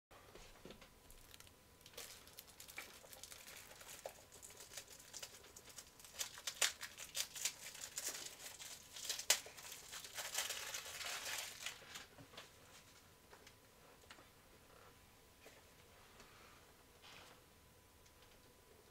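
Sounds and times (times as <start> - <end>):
crinkly packaging being handled: 1.0 - 13.0.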